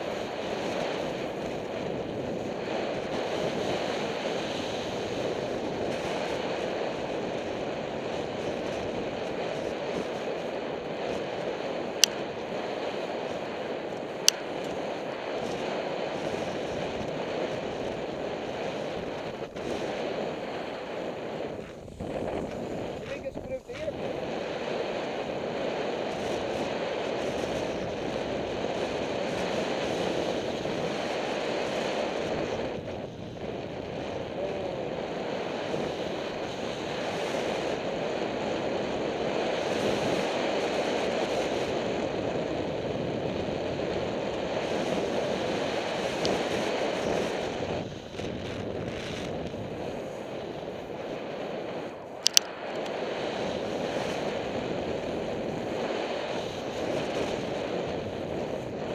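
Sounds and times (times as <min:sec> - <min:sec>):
skis hissing on snow: 0:00.0 - 0:58.9
wind over microphone: 0:00.0 - 0:58.9
sharp click: 0:52.2 - 0:52.9.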